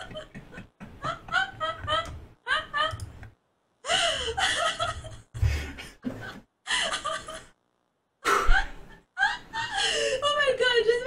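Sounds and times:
woman laughing breathily: 0.0 - 3.0, 3.8 - 7.5, 8.2 - 10.2.

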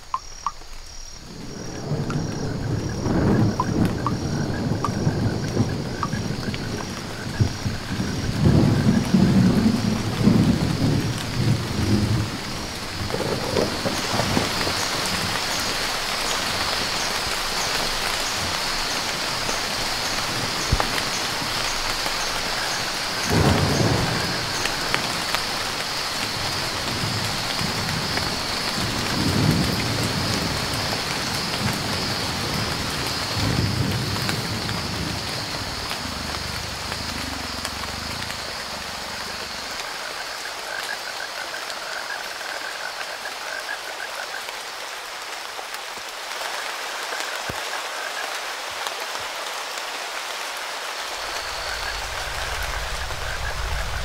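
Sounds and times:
heavy rain on foliage: 0.0 - 54.0
thunder rolling: 1.3 - 15.5, 19.3 - 39.4, 51.2 - 54.0.

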